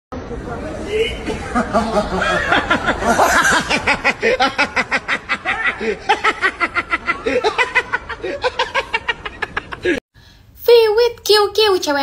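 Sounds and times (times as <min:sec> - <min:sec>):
man laughing hard: 0:01.4 - 0:10.0.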